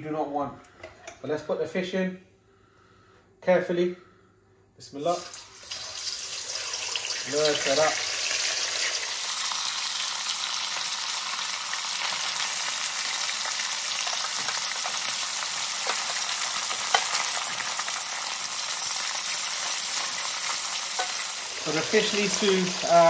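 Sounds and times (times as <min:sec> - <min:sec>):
fish frying in hot oil: 0:05.3 - 0:23.0.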